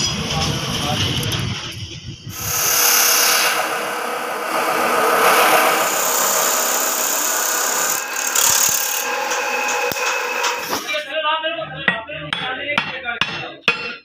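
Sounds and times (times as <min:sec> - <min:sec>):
cut-off saw grinding metal: 0:02.3 - 0:11.0.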